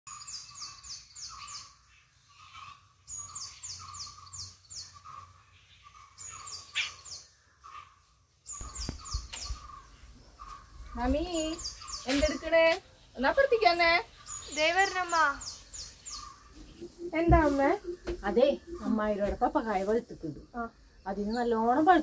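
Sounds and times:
dull low thumps: 0:16.5 - 0:19.6.

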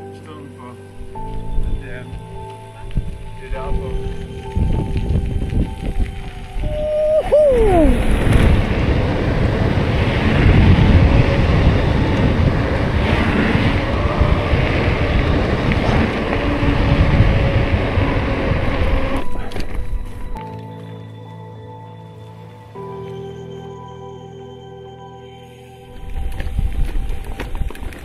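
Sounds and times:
wind buffeting microphone: 0:01.0 - 0:20.4, 0:26.0 - 0:28.0
tyre rumble on road: 0:07.9 - 0:20.4.

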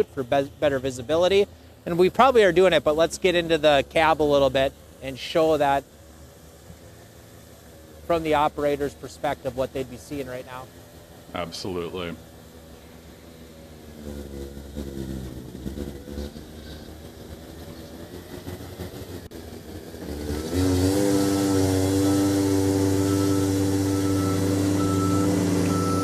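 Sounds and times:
loader engine and hydraulics whining: 0:00.0 - 0:26.0
faint beeping: 0:23.0 - 0:26.0.

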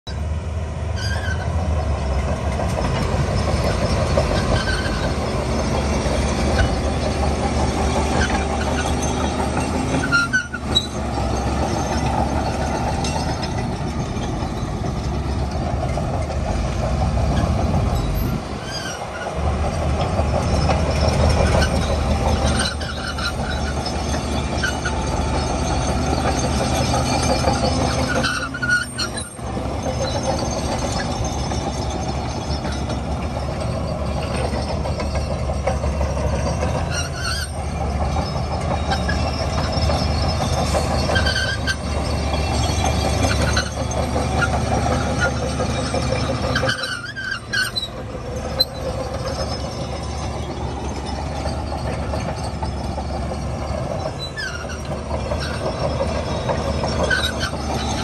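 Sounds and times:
bulldozer diesel engine: 0:00.0 - 0:58.0
steel tracks clanking: 0:00.1 - 0:58.0.

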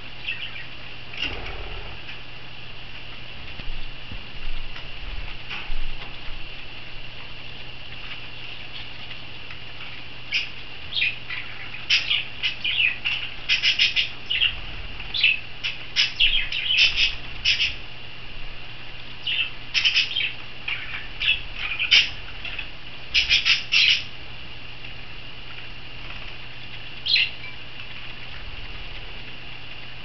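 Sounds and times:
small parrots chirping and squawking: 0:00.2 - 0:02.2, 0:09.8 - 0:17.8, 0:19.2 - 0:24.1, 0:27.0 - 0:28.0.

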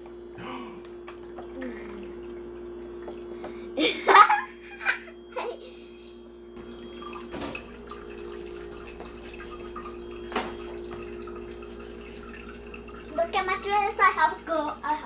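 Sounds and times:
steady low hum: 0:00.0 - 0:15.0
trickling water from faucet: 0:06.6 - 0:15.0.

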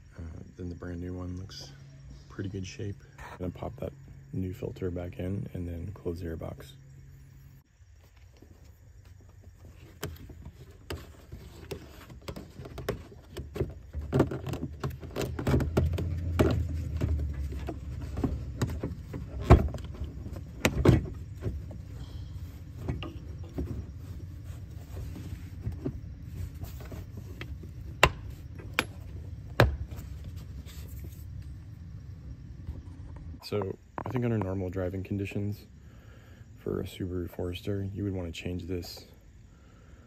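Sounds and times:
plastic scraping and knocking: 0:09.6 - 0:21.9, 0:22.7 - 0:31.2.

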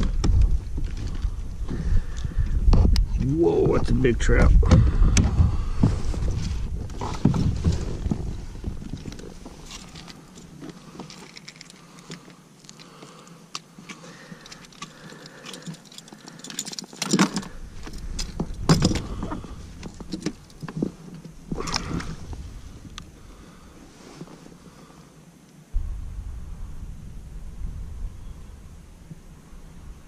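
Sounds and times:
hooks and gear rattling: 0:08.8 - 0:22.1.

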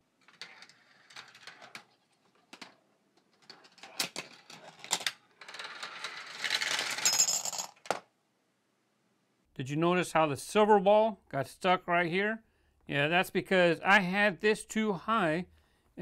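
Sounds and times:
marbles rolling and clicking: 0:00.2 - 0:08.0.

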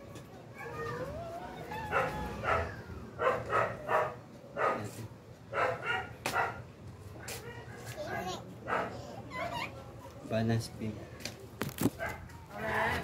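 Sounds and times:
dog barking: 0:01.9 - 0:06.7, 0:08.6 - 0:09.0, 0:12.0 - 0:12.2.

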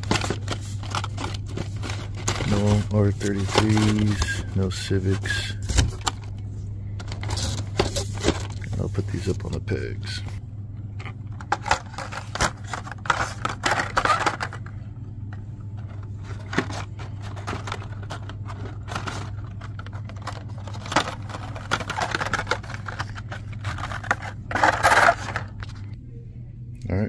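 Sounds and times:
plastic packaging clicks and rattles: 0:00.0 - 0:04.7, 0:11.0 - 0:14.7, 0:15.8 - 0:25.8
steady low hum: 0:00.0 - 0:27.0.

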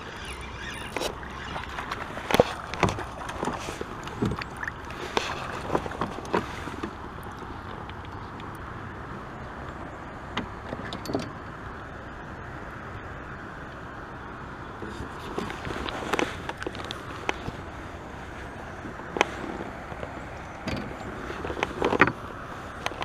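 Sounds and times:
water washing: 0:00.0 - 0:07.4.

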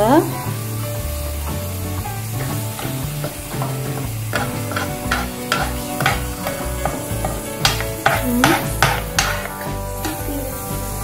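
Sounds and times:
sizzling: 0:00.0 - 0:11.0
metal spoon scraping pan: 0:02.8 - 0:10.3.

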